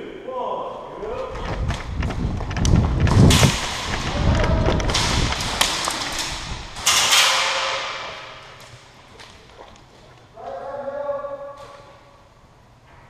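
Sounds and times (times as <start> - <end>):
thuds and rustling: 1.4 - 9.5.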